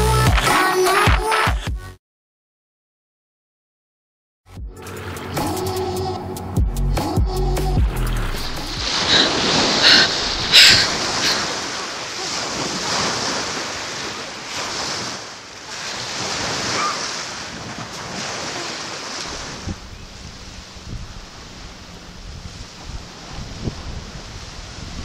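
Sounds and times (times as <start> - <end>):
water splashes: 7.8 - 25.0
wind on microphone: 8.1 - 11.8, 16.2 - 25.0
small waves washing on shore: 8.1 - 25.0.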